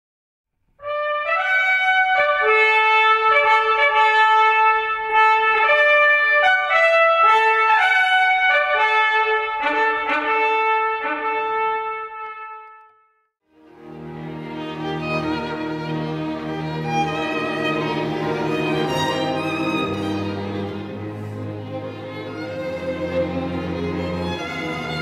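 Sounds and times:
trumpets playing: 0:00.8 - 0:13.1.

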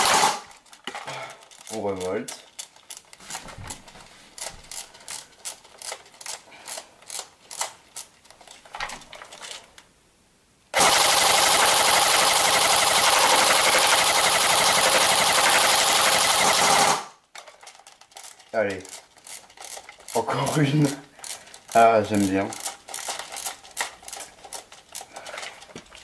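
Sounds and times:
airsoft rifle full-auto burst: 0:00.0 - 0:00.5, 0:10.7 - 0:17.2
magazine wheel clicking: 0:01.4 - 0:03.4, 0:04.4 - 0:08.6, 0:11.3 - 0:25.7.

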